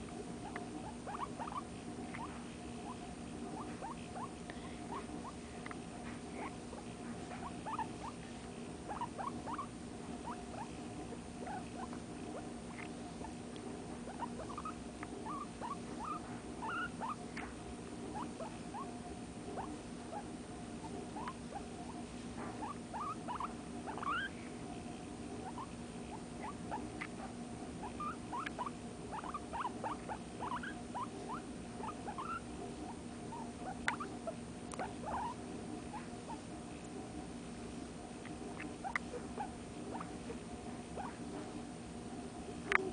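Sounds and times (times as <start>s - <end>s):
guinea pig squeaking: 0.4s - 5.4s, 6.0s - 24.3s, 25.4s - 36.5s, 38.2s - 40.4s, 41.0s - 41.4s.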